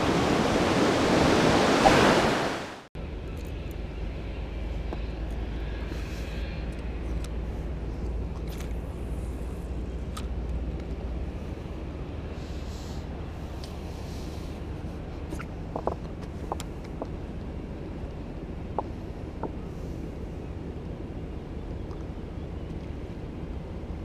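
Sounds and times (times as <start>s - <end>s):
surf breaking on a beach: 0.0s - 2.9s
steady low rumble: 3.0s - 24.0s.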